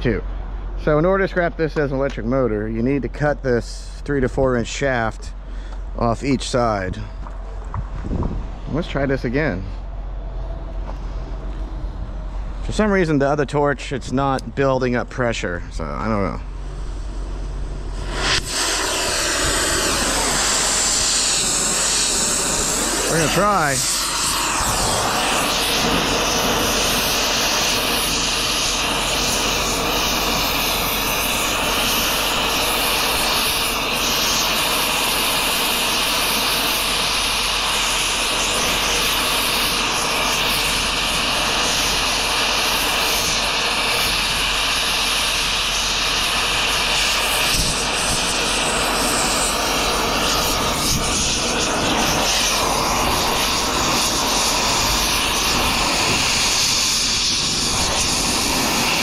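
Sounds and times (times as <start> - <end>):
cutting torch hissing: 15.4 - 59.0.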